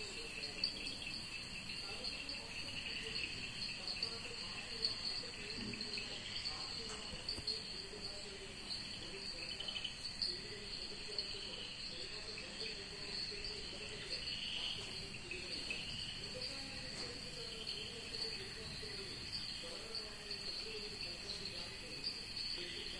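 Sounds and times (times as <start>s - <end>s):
crickets chirring: 0.0s - 22.9s
wavering lower insect calls: 0.0s - 22.9s.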